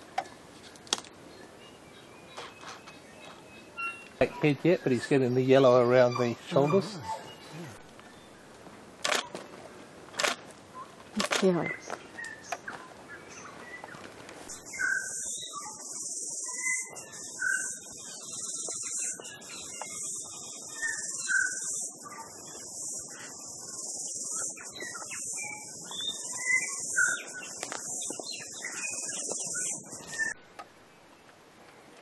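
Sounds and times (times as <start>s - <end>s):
shrill insect chorus: 3.6s - 7.8s, 14.5s - 31.0s
bird chirps and whistles: 14.5s - 22.2s.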